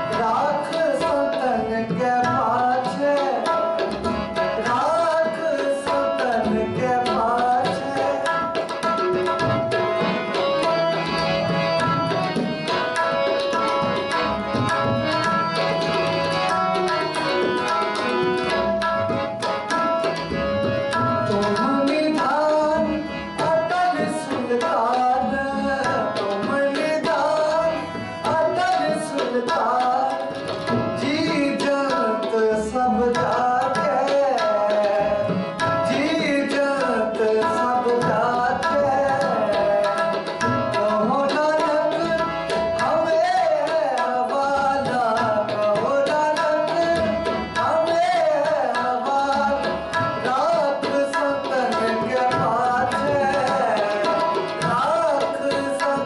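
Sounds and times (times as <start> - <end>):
man singing: 0.0 - 10.0, 21.2 - 56.0
harmonium melody: 0.0 - 56.0
tabla beating rhythm: 0.0 - 56.0.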